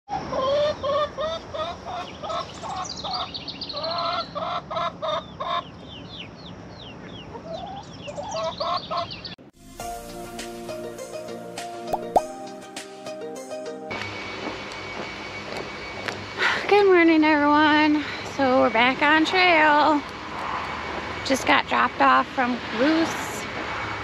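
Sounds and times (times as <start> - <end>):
chickens clucking: 0.2 - 5.7, 7.0 - 9.2
plucked music: 9.6 - 14.0
quick downward chirps: 11.6 - 12.6.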